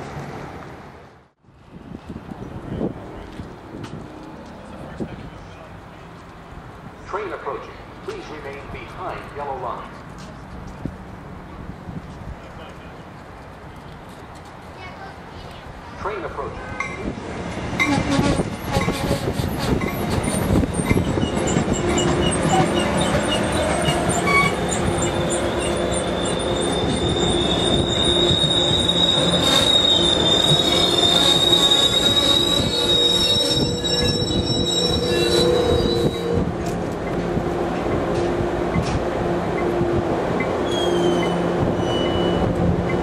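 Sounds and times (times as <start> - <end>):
train wheels rumbling on rails: 16.8 - 43.0
high-pitched brake squeal: 17.8 - 36.4, 40.6 - 42.5.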